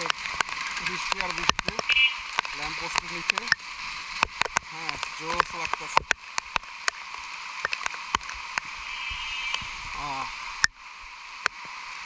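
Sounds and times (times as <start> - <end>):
raindrops ticking on phone: 0.0 - 8.7
rain hissing: 0.0 - 12.0
person's voice: 0.8 - 1.9, 2.6 - 3.6, 4.7 - 6.1, 9.9 - 10.4.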